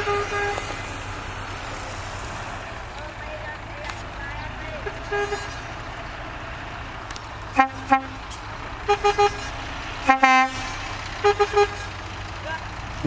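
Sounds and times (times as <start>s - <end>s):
truck horn tooting: 0.0s - 0.9s, 4.7s - 5.8s, 7.5s - 12.0s
truck engine humming: 0.0s - 13.0s.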